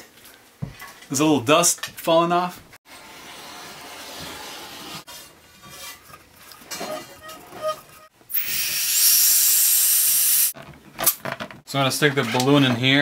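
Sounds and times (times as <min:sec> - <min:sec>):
gas hissing into balloon: 0:08.3 - 0:10.6.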